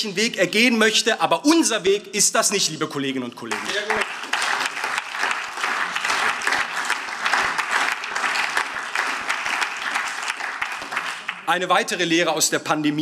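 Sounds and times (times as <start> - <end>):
people clapping: 3.5 - 12.2.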